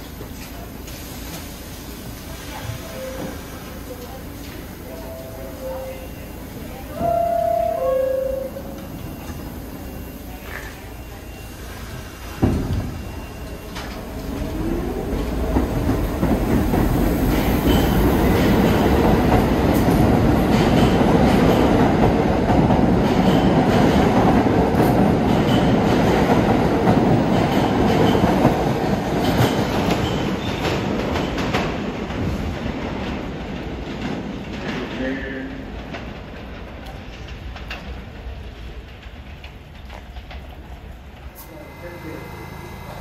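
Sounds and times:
train whine: 0.0 - 30.8, 39.8 - 43.0
subway train wheels clattering: 0.0 - 43.0.

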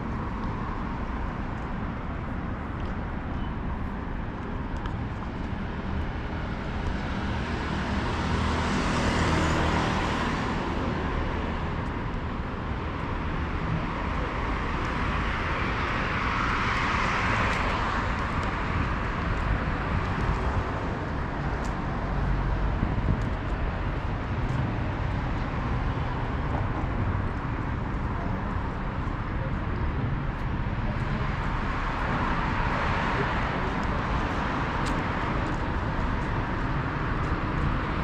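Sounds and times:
steady traffic hum: 0.0 - 38.0.

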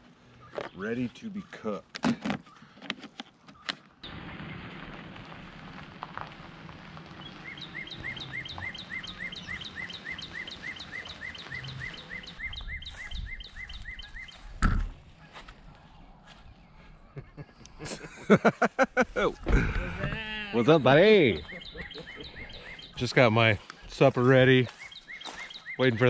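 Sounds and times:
outdoor background noise: 0.0 - 26.0
bird chirping: 7.0 - 17.8, 19.0 - 26.0
loud thump: 14.6 - 15.0, 19.4 - 20.2.

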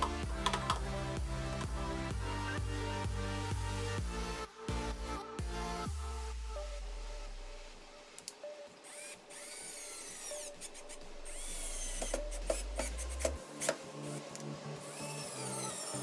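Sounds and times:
cordless drill motor whining: 8.8 - 16.0.

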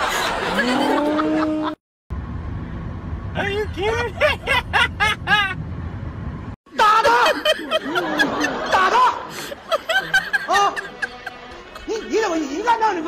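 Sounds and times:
person laughing in bursts: 0.0 - 1.8, 4.1 - 5.6, 6.8 - 12.1
car rumble: 0.4 - 6.6.

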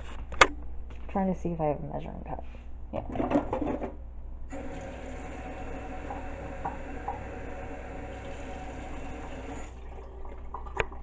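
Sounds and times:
water running into a cup: 4.5 - 11.0.

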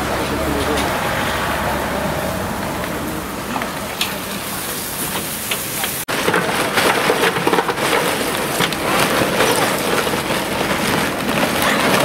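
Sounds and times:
charcoal clattering into metal grill: 5.1 - 12.0.

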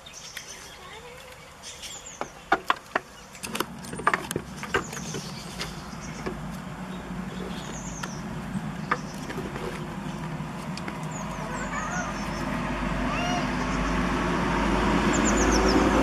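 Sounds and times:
low motor hum: 3.3 - 16.0.

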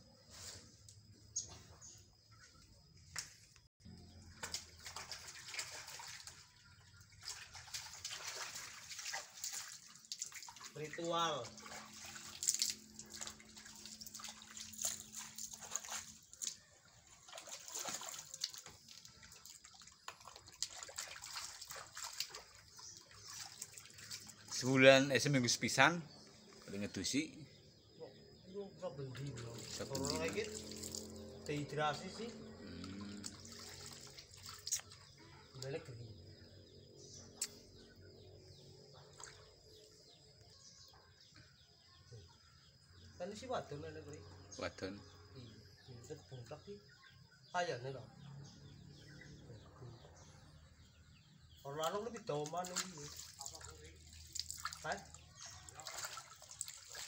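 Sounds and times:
faint bird chirps: 0.0 - 57.0
water sloshing in basin: 0.6 - 27.1, 29.0 - 41.1, 49.2 - 57.0
small water splashes: 1.4 - 25.3, 29.0 - 41.8, 50.0 - 57.0.

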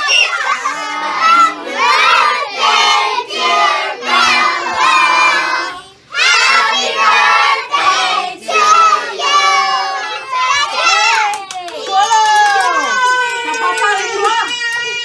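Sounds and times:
children and adults singing: 0.4 - 11.2.

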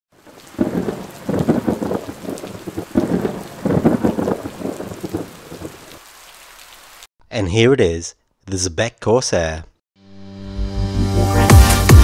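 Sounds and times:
thunder rolling: 0.2 - 5.9
rain hiss: 0.2 - 7.1.

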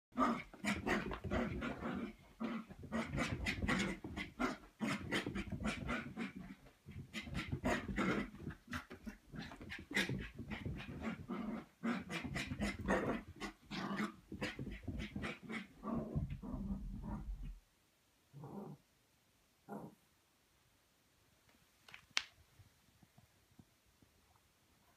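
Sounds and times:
puppy growling playfully: 0.2 - 17.6, 18.4 - 18.8.

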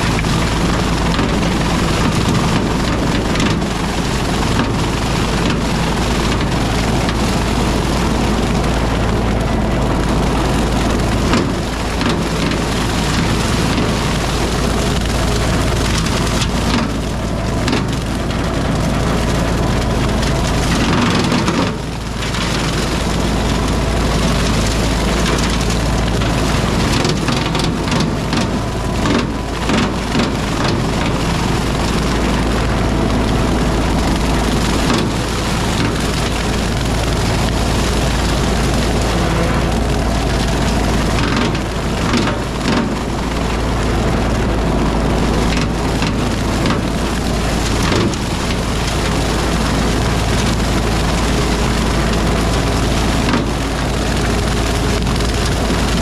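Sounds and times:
rotary cutter mowing brush: 0.0 - 56.0
tractor engine running under load: 0.0 - 56.0.

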